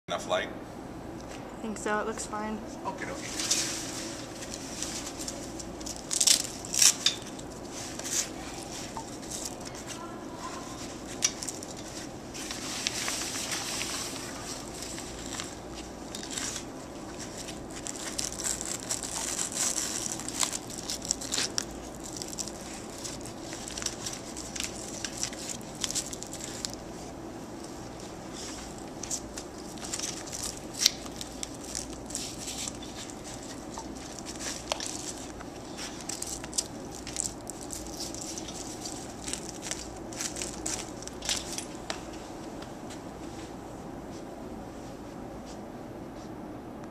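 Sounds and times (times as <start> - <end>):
steady low hum: 0.1 - 46.9
tent fabric rustling: 3.1 - 43.6
velcro straps pulled: 17.3 - 26.8.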